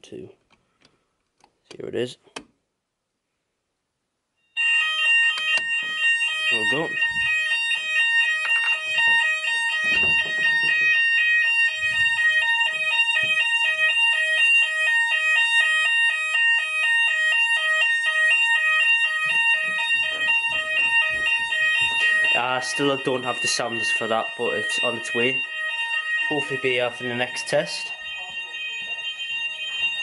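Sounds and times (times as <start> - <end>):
fire alarm two-tone sounder: 4.4 - 30.0
soft handling bumps: 19.2 - 22.3.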